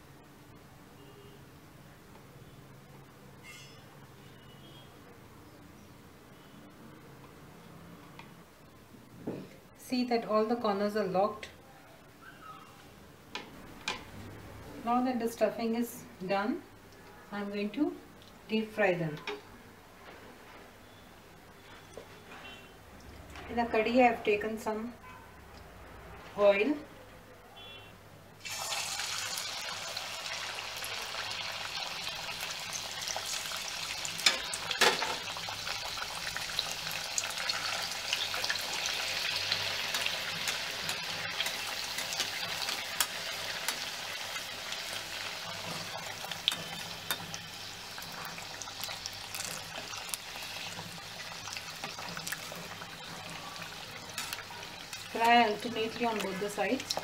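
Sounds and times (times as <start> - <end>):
food sizzling in hot oil: 28.4 - 57.0.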